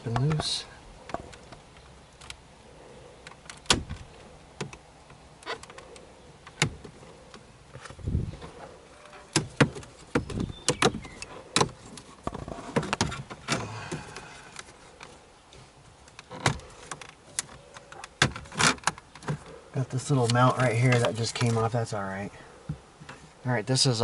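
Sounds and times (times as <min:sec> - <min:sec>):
plastic scraping and rattling: 0:03.3 - 0:15.2, 0:16.0 - 0:21.8.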